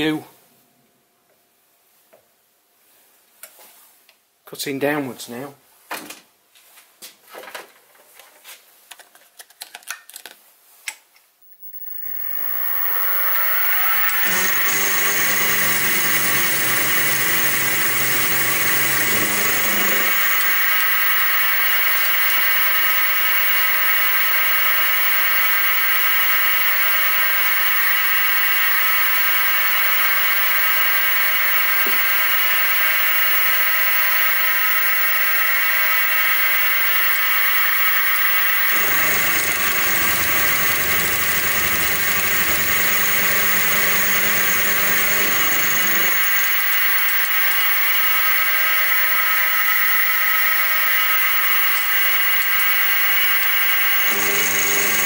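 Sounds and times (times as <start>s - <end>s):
milling machine motor whine: 11.4s - 55.0s.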